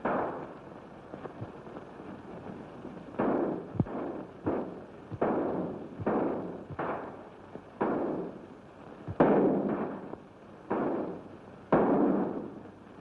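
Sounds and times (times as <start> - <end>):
echoing gunshots: 3.2 - 7.2, 7.8 - 8.3, 9.2 - 10.1, 10.7 - 12.5.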